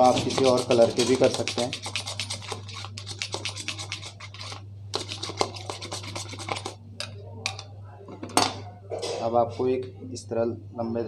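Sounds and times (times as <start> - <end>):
palette knife scraping plastic bowl: 0.0 - 6.8.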